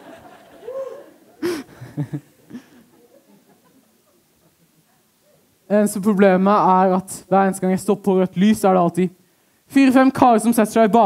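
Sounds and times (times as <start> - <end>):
audience laughter: 0.0 - 4.9.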